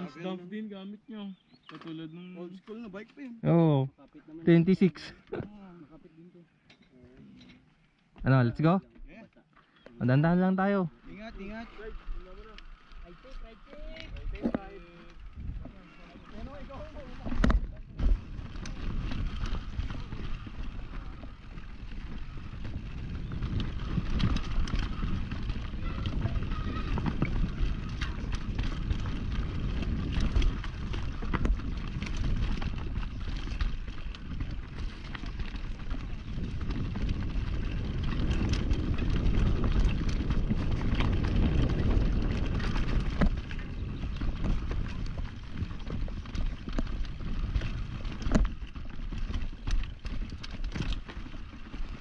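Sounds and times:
bike tyres rolling over dirt: 1.3 - 52.0
bike clattering over bumps: 11.0 - 52.0.

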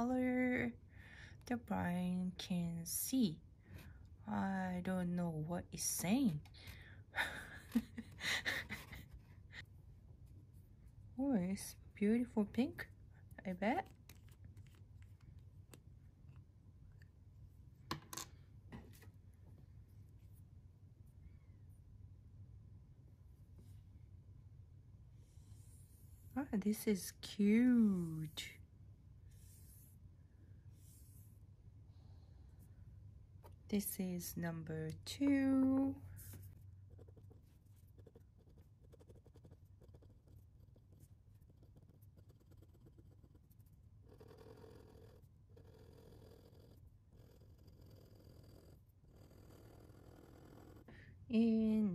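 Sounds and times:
faint low hum: 0.0 - 51.9
pen nib scratching paper: 36.2 - 50.9.

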